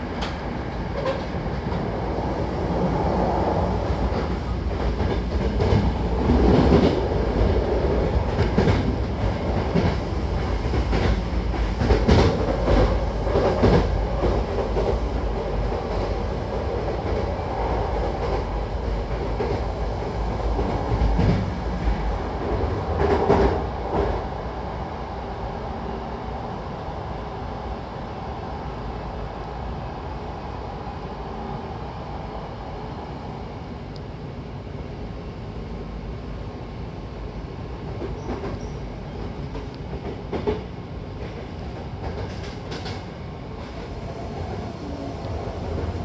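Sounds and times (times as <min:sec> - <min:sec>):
train running gear rumble: 0:00.0 - 0:24.4, 0:36.6 - 0:46.0.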